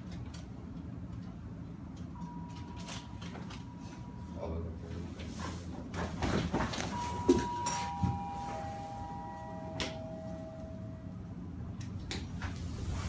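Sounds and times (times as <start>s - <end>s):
three-note descending chime: 7.0s - 11.2s.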